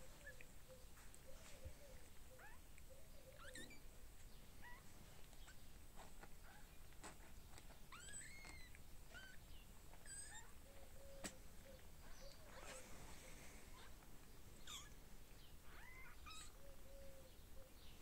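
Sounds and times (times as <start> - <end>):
kittens mewing: 14.6 - 15.0.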